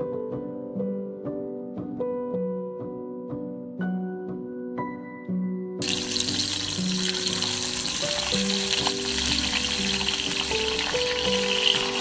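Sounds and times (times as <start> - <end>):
piano music: 0.0 - 12.0
sausages sizzling in oil: 5.8 - 12.0.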